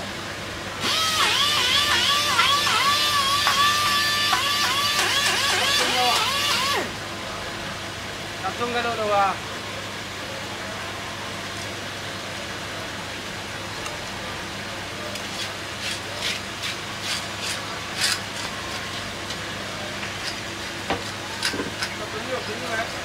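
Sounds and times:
cleaver scraping through fish: 15.3s - 19.0s.

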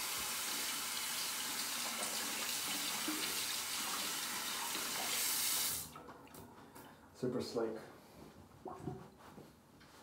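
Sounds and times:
tap water running into sink: 0.0s - 6.4s.

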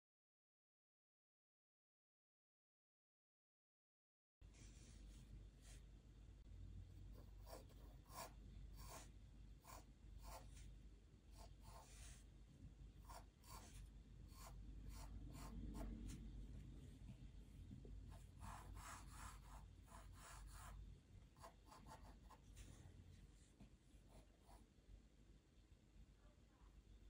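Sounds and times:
pencil scratching on paper: 7.1s - 10.7s, 11.3s - 12.3s, 13.0s - 16.2s, 18.1s - 20.8s, 21.4s - 22.8s, 24.1s - 24.6s.

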